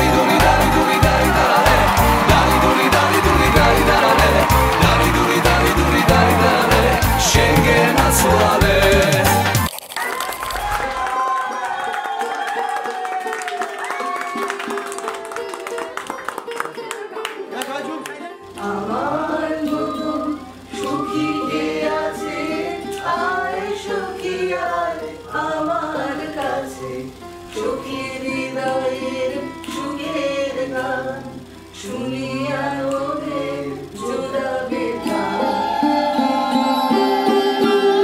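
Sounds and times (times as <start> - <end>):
women singing: 0.0 - 9.6, 18.5 - 38.0.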